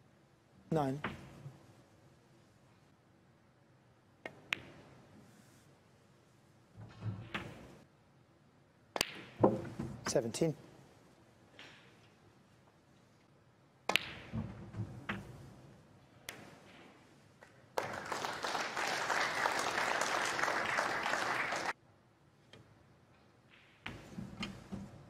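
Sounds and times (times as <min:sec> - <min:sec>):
audience applause: 0:17.8 - 0:21.8.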